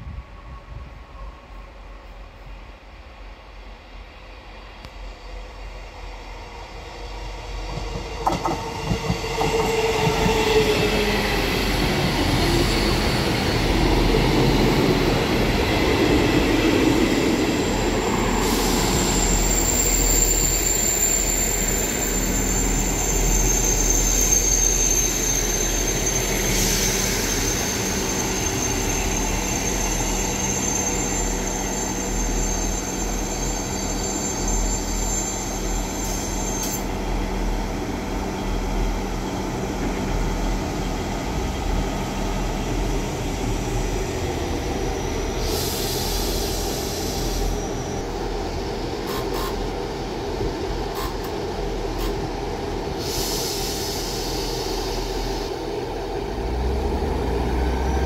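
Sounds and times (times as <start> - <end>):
train wheels rumbling on rails: 4.8 - 58.0
high-pitched wheel squeal: 17.6 - 36.9.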